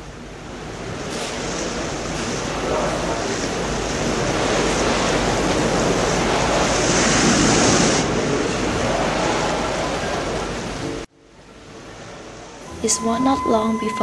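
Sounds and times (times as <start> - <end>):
sea waves washing: 0.0 - 11.1.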